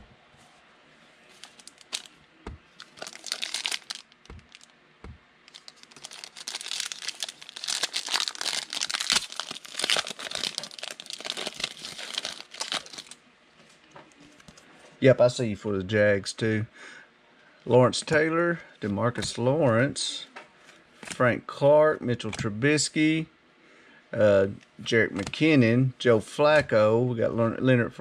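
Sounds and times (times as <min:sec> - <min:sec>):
foil wrapper crinkling: 0:01.4 - 0:02.1, 0:02.8 - 0:04.7, 0:05.5 - 0:13.2
foil wrapper tearing: 0:01.4 - 0:02.1, 0:02.8 - 0:04.7, 0:05.5 - 0:13.2.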